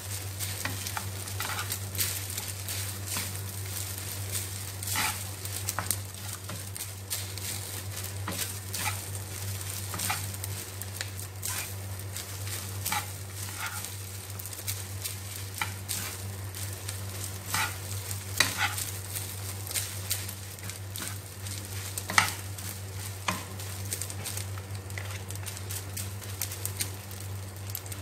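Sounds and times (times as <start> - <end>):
rice sizzling: 0.0 - 28.0
wooden spatula scraping pan: 0.6 - 1.8, 4.9 - 6.6, 7.5 - 9.0, 12.4 - 14.0, 17.4 - 18.9.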